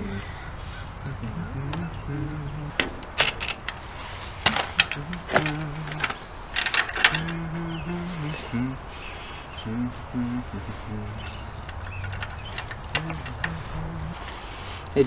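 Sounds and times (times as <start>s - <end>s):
clicks and knocks of latch: 2.7s - 3.8s, 4.4s - 7.4s, 11.6s - 13.9s.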